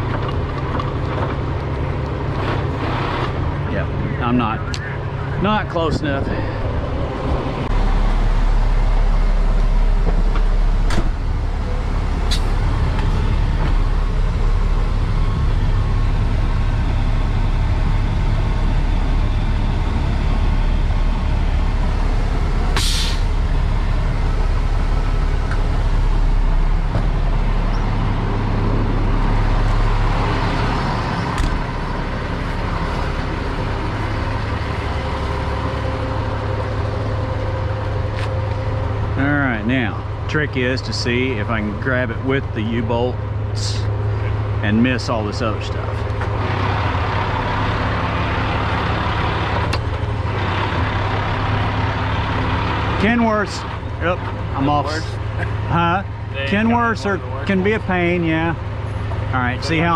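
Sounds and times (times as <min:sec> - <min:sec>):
diesel truck engine running: 0:00.0 - 0:59.9
air brake hiss: 0:22.8 - 0:23.3.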